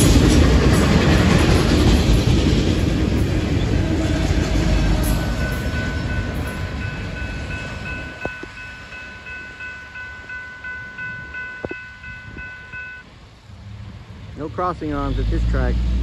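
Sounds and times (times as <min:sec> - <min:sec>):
train rumble: 0:00.0 - 0:16.0
crossing bell dinging: 0:04.3 - 0:13.1.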